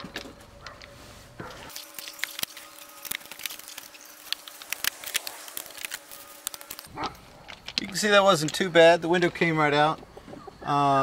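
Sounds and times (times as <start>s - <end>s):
window frame crackling and popping: 1.7s - 8.5s.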